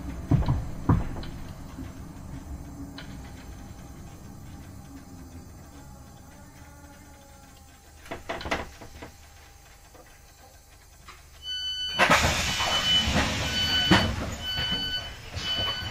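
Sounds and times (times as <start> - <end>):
knocks: 0.0 - 2.0
sliding doors rushing: 0.0 - 15.9
train door warning beeps: 2.8 - 15.9.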